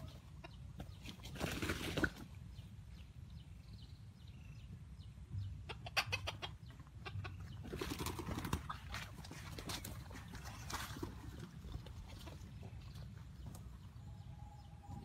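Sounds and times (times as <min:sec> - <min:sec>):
rooster clucking: 0:00.0 - 0:02.2, 0:05.6 - 0:11.2.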